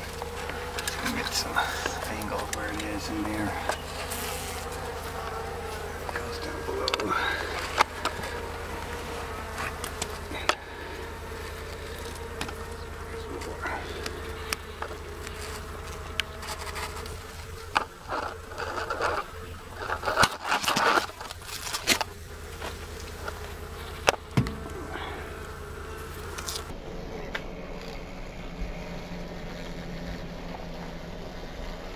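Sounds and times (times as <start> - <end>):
bee colony buzzing: 0.0 - 31.9
knocks and scrapes: 14.8 - 24.8.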